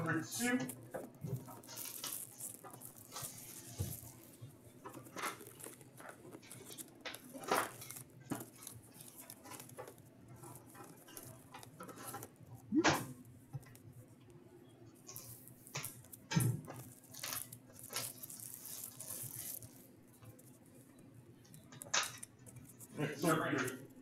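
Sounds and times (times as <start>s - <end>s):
shrink wrap crinkling: 0.0s - 12.4s, 15.1s - 20.5s.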